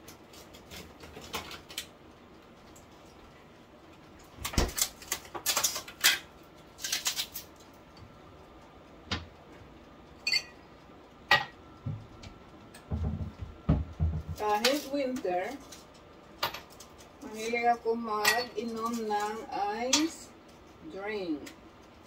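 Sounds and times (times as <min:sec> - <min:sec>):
glass clinking: 0:10.2 - 0:10.6
soft low thumps: 0:11.8 - 0:14.4
knocks: 0:12.9 - 0:14.4.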